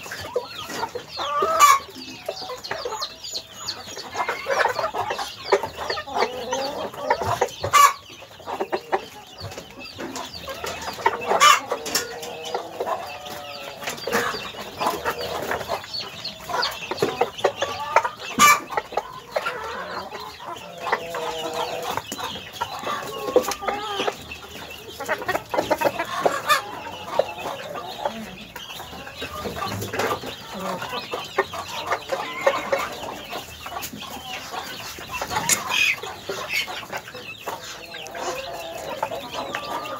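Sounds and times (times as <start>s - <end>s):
hens clucking: 0.0s - 39.9s.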